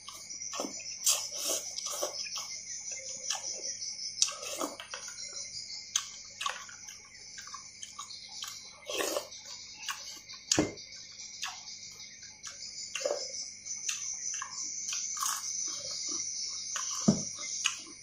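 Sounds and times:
slurping noodle soup: 0:00.1 - 0:02.6, 0:04.2 - 0:04.9, 0:08.8 - 0:10.0.

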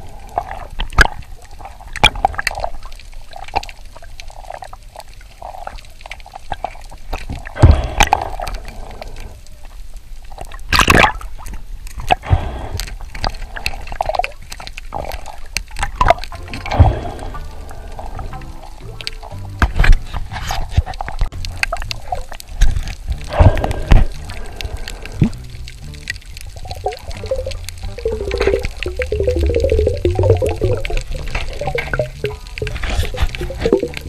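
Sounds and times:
underwater sloshing and bubbling: 0:00.0 - 0:34.0
sharp underwater clicks: 0:00.2 - 0:09.3, 0:10.4 - 0:34.0
bubbling rushes: 0:12.0 - 0:34.0.

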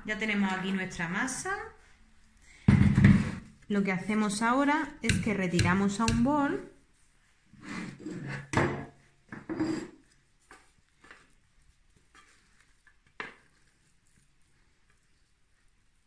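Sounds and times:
metal bowl knock: 0:05.1 - 0:06.3.

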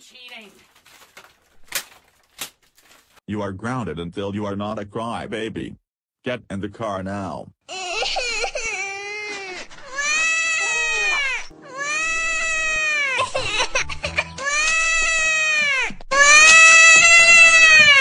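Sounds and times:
cartoon high-pitched crying wails: 0:07.7 - 0:18.0.

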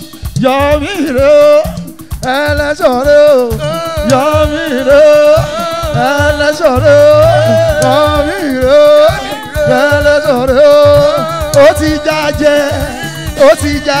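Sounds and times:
drum kit: 0:00.0 - 0:14.0
bass line: 0:00.3 - 0:14.0
sliding melodic lead: 0:03.4 - 0:14.0.

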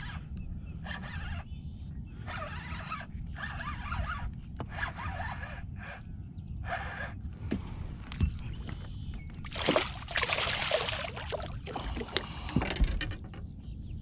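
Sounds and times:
water splashing and sloshing: 0:09.4 - 0:12.7.

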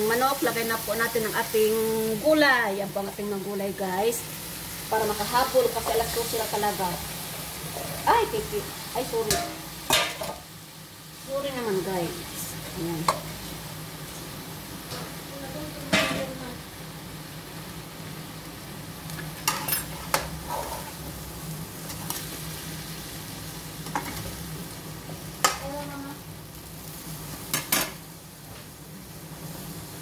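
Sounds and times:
food sizzling in a pan: 0:00.0 - 0:30.0
spatula scraping a pan: 0:19.4 - 0:21.1.

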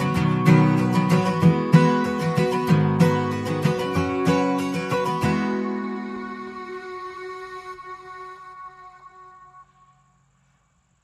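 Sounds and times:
ringing guitar-like notes: 0:00.0 - 0:10.0.

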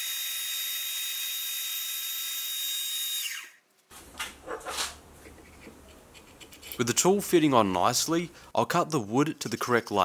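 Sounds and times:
short scraping: 0:03.9 - 0:06.8.

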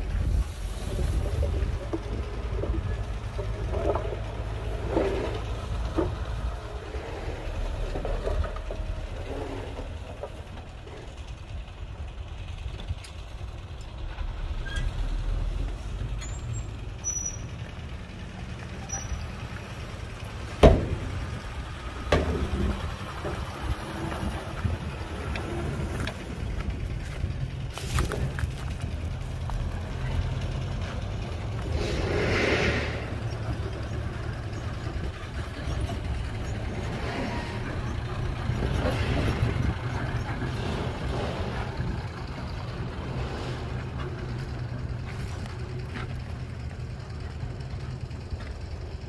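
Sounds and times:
diesel machinery rumbling: 0:00.0 - 0:49.0
clanks and knocks: 0:01.2 - 0:06.4, 0:20.4 - 0:31.7.

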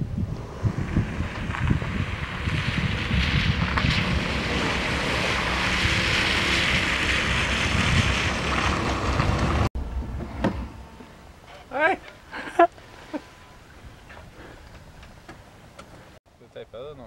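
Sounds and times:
wind on microphone: 0:00.0 - 0:10.8
car engine rumble: 0:00.0 - 0:16.2
tyres crunching on wet gravel: 0:00.6 - 0:09.7.

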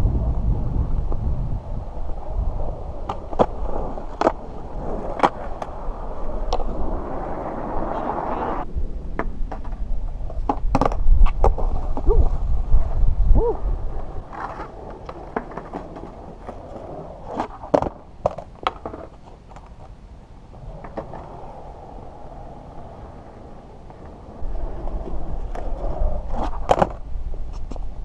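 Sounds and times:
skateboard wheels rumbling on concrete: 0:00.0 - 0:28.0
skateboard clacks: 0:03.0 - 0:12.4, 0:14.0 - 0:27.9.

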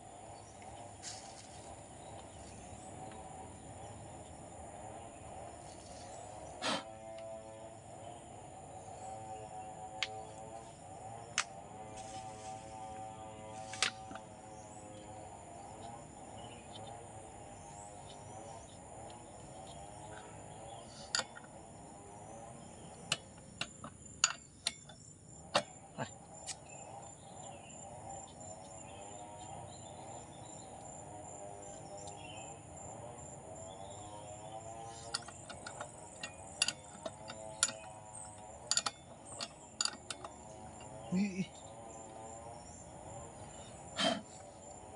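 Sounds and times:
insects chirping: 0:00.0 - 0:44.9
clicks and taps of handling chainsaw: 0:21.1 - 0:21.6, 0:23.0 - 0:25.8, 0:34.2 - 0:41.1.

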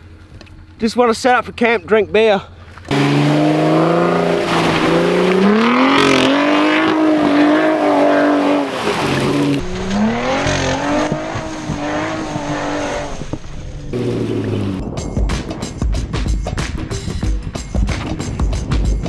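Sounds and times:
engine revving: 0:02.9 - 0:14.8.

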